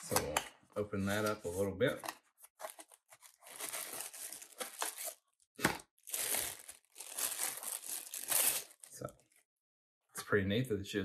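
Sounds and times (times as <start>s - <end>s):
plastic bag crinkling: 2.7s - 5.2s, 6.0s - 9.4s.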